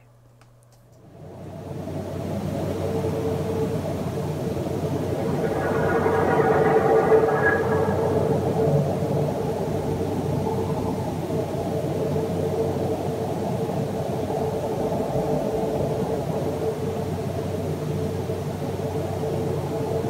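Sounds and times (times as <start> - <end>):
steady hum-like tone: 0.0 - 20.0
low rumbling drone: 1.3 - 12.3.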